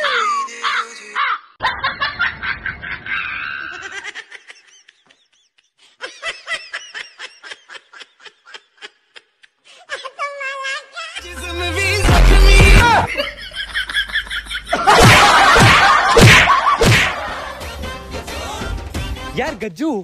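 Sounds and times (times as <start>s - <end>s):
people laughing: 0.5s - 9.4s, 11.2s - 17.8s.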